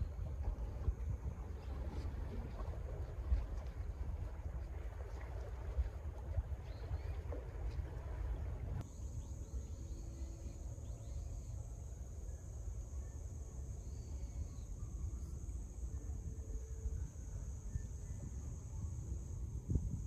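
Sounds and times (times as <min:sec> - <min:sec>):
low wind rumble: 0:00.0 - 0:20.0
crickets chirping: 0:06.7 - 0:20.0.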